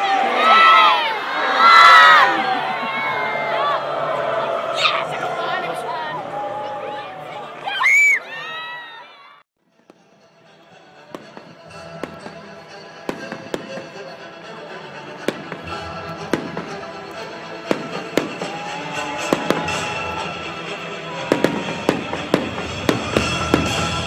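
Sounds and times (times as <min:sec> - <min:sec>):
music: 0:09.6 - 0:24.0
fireworks bangs and crackles: 0:09.7 - 0:24.0.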